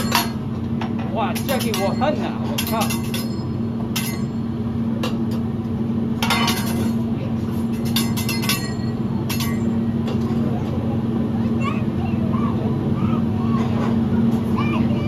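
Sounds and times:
metal utensils clinking on griddle: 0:00.0 - 0:00.4, 0:01.3 - 0:04.4, 0:06.2 - 0:07.0, 0:07.6 - 0:10.3
steady low hum: 0:00.0 - 0:15.0.

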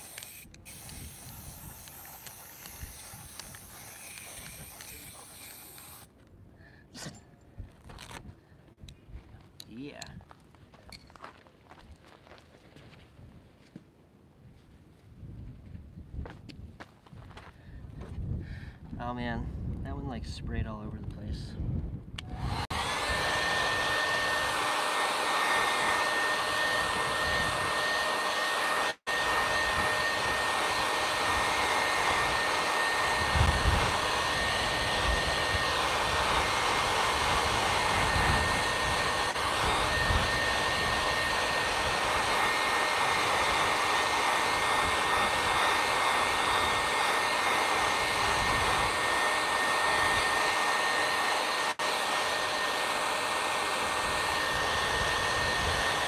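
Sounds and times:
hair dryer running: 0:00.0 - 0:06.1, 0:22.2 - 0:56.0.

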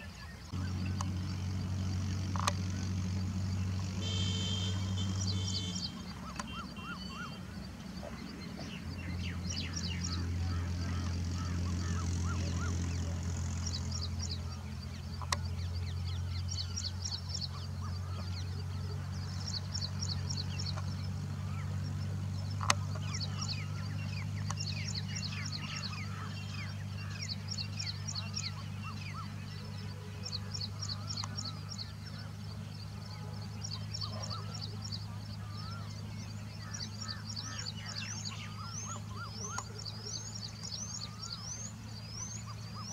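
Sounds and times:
small birds chirping: 0:00.0 - 0:42.9
steady low hum: 0:00.0 - 0:42.9
sharp clicks: 0:02.3 - 0:02.6.

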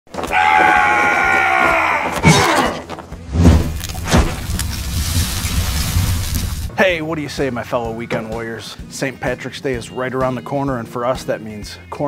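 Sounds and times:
long cry-like sound: 0:00.2 - 0:02.8
heavy hits with deep booms: 0:03.3 - 0:06.7
low rumble: 0:03.3 - 0:06.7.

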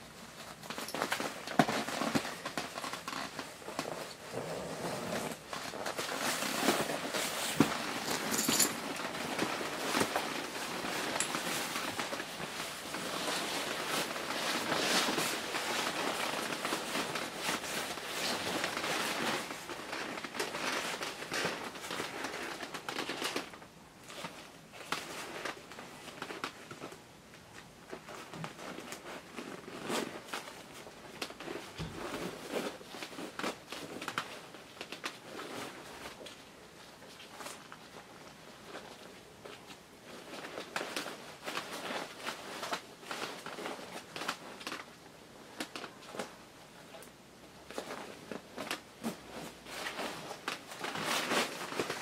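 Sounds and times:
nylon suit rustling: 0:00.2 - 0:23.3.

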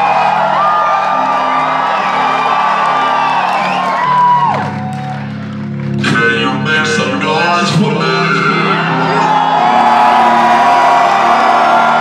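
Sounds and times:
crowd cheering and whooping: 0:00.0 - 0:05.6, 0:08.7 - 0:12.0.

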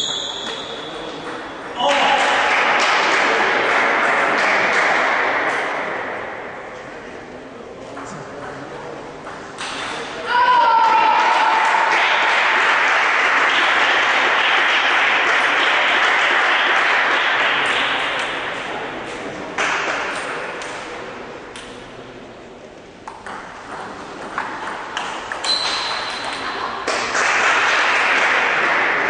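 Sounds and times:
crowd noise in hall: 0:00.0 - 0:29.0
table tennis ball hits: 0:00.3 - 0:06.4, 0:09.3 - 0:10.2, 0:10.8 - 0:18.7, 0:19.5 - 0:20.9, 0:23.0 - 0:29.0.

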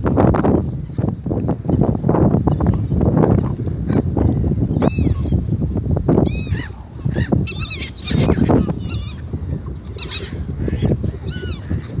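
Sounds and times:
wind rumble on microphone: 0:00.0 - 0:12.0
gulls squawking: 0:06.3 - 0:12.0.

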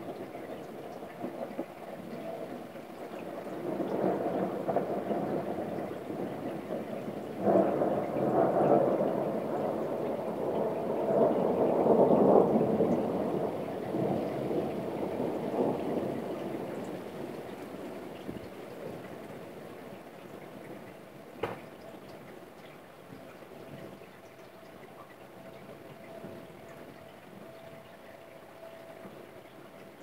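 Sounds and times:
rolling thunder: 0:00.0 - 0:22.4
steady rain: 0:00.0 - 0:30.0.

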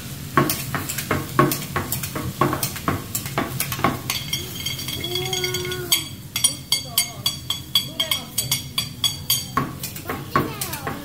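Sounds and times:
vegetables sizzling on griddle: 0:00.0 - 0:11.0
spatula clinking metal shaker: 0:03.7 - 0:10.9.

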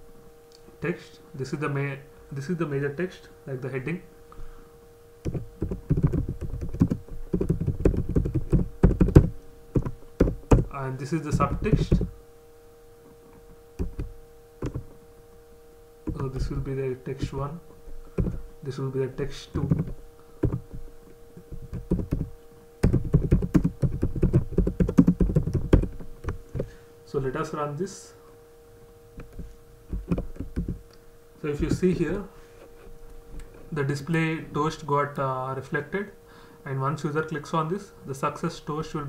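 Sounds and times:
faint steady hum: 0:00.0 - 0:39.0
typing on a computer keyboard: 0:05.3 - 0:10.7, 0:13.8 - 0:14.8, 0:21.7 - 0:26.0, 0:29.3 - 0:30.8.

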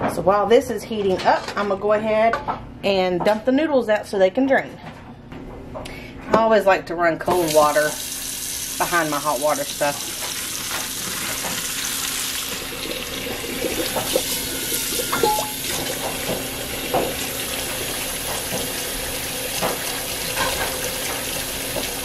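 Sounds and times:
faucet running into sink: 0:07.3 - 0:22.0.

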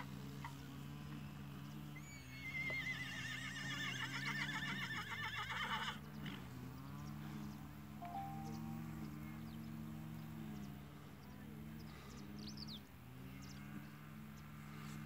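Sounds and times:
horse whinnying: 0:02.0 - 0:06.0.

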